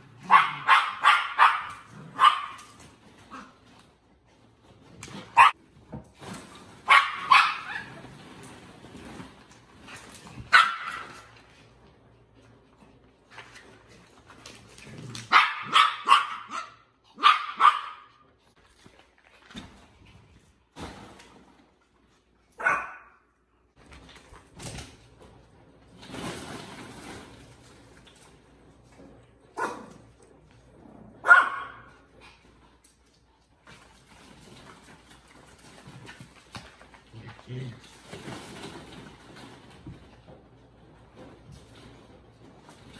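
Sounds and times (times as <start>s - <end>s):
small dogs barking sharply: 0.2s - 2.8s, 5.3s - 5.6s, 6.8s - 7.9s, 10.5s - 11.2s, 15.3s - 18.2s, 22.6s - 23.2s, 31.2s - 31.9s
rustling: 23.8s - 31.0s, 31.8s - 42.9s.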